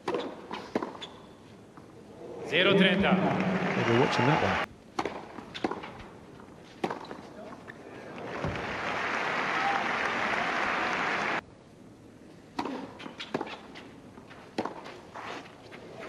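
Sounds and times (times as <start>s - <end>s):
tennis racquets hitting ball: 0.0s - 1.2s, 4.9s - 6.1s, 6.8s - 7.2s, 12.6s - 13.8s, 14.5s - 15.0s
crowd applause: 2.8s - 4.7s, 8.0s - 11.4s.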